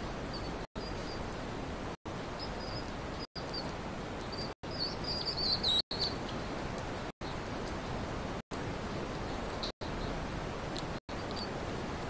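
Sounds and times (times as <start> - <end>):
baby hedgehog peeping: 0.2 - 1.4, 2.1 - 7.8, 9.0 - 12.0.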